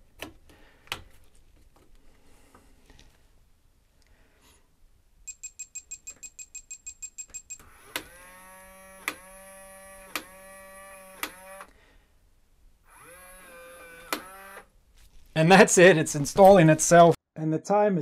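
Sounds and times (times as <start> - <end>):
short electronic beeps: 5.3 - 7.6
lock motor clicks: 7.6 - 11.7, 12.9 - 14.7
lock motor whirring: 7.6 - 11.7, 12.9 - 14.7.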